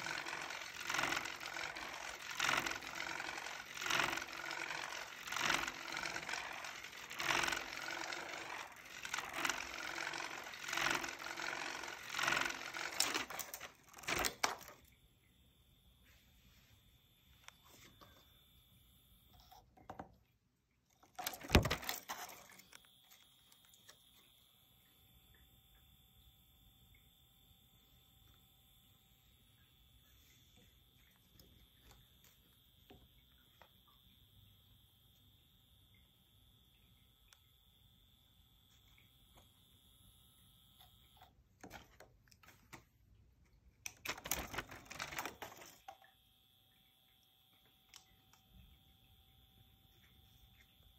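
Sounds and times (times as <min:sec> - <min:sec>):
rapid clicking and rattling: 0:00.0 - 0:14.8, 0:43.9 - 0:45.9
high whine of toy motor: 0:00.0 - 0:14.9, 0:21.2 - 0:36.5, 0:43.9 - 0:46.7.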